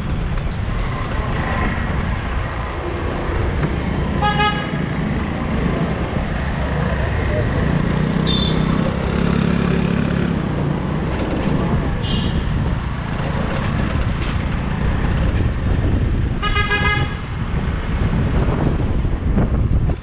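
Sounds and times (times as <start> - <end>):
traffic engine and road rumble: 0.0 - 20.0
loud car horn honk: 4.2 - 4.8, 8.2 - 8.8, 12.0 - 12.5, 16.4 - 17.3.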